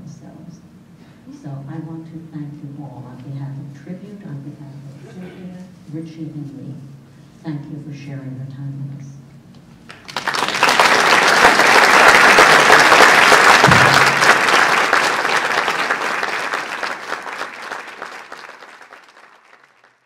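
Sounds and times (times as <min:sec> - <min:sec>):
audience applauding: 0:09.9 - 0:20.0.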